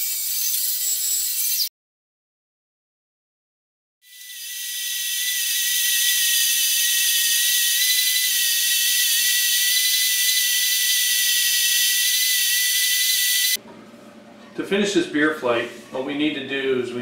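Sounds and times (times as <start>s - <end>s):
spindle sander whining: 4.1s - 13.6s.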